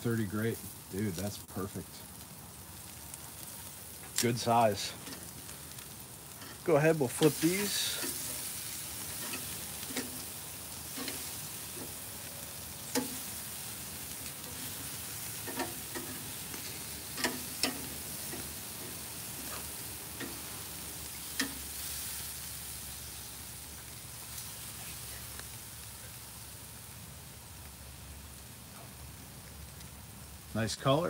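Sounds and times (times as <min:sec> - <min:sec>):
pork chops sizzling on a grill: 0:00.0 - 0:31.0
metal tongs clicking against grate: 0:08.0 - 0:08.3, 0:09.2 - 0:10.3, 0:10.9 - 0:11.9, 0:12.9 - 0:13.2, 0:15.4 - 0:19.6, 0:20.2 - 0:20.4, 0:21.2 - 0:21.6.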